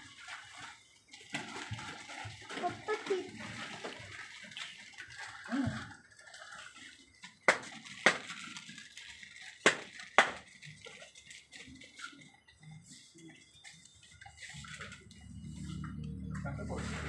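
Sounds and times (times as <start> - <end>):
sharp knocks: 7.5 - 8.2, 9.7 - 10.4.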